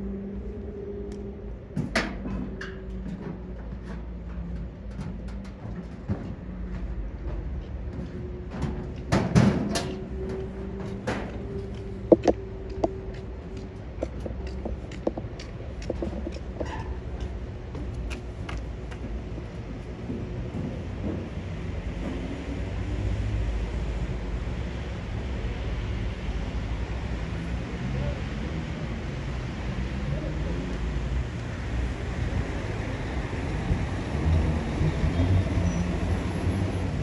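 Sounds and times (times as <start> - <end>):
scattered clicks and knocks: 11.0 - 19.2.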